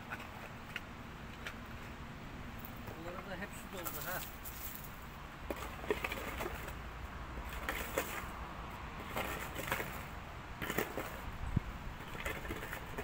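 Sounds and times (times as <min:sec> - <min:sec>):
digging tool scraping stones: 0:09.0 - 0:11.3.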